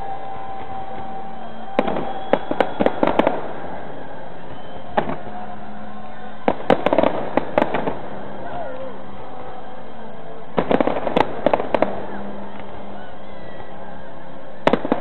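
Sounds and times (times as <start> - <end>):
fireworks bangs and pops: 0.5 - 5.4, 6.4 - 8.4, 10.6 - 12.8, 14.6 - 15.0.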